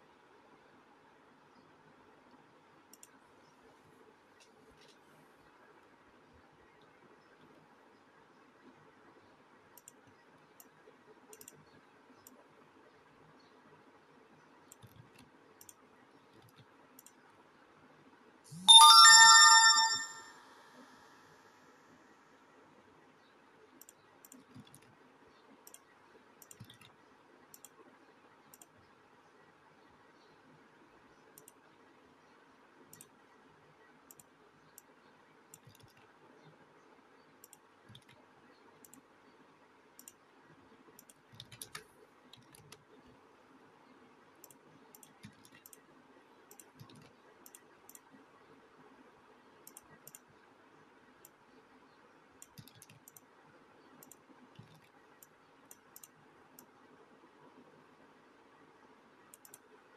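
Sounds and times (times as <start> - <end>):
faint room hiss: 0.0 - 59.9
small clicks: 2.3 - 3.2, 9.7 - 12.5, 14.6 - 17.3, 23.8 - 27.8, 28.5 - 28.8, 31.3 - 31.6, 32.9 - 33.2, 34.0 - 36.2, 37.4 - 39.1, 39.9 - 40.3, 40.9 - 43.2, 44.4 - 45.9, 46.5 - 48.3, 49.6 - 50.4, 52.4 - 56.8, 59.3 - 59.8.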